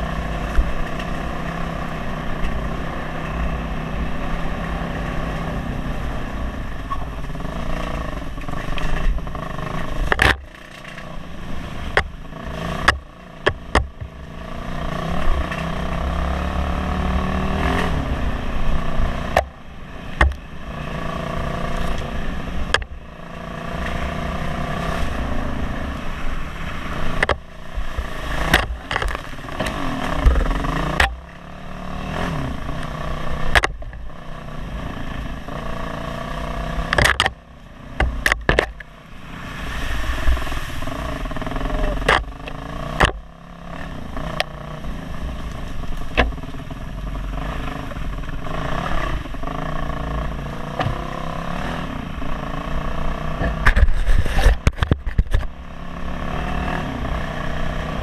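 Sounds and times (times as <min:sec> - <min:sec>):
motorcycle engine revving: 0:00.0 - 0:58.0
sharp knocks and clatter: 0:07.7 - 0:11.1, 0:11.9 - 0:14.2, 0:19.3 - 0:20.4, 0:27.1 - 0:27.5, 0:28.4 - 0:31.4, 0:33.5 - 0:34.0, 0:36.8 - 0:37.4, 0:38.0 - 0:38.9, 0:41.4 - 0:43.3, 0:53.4 - 0:55.5.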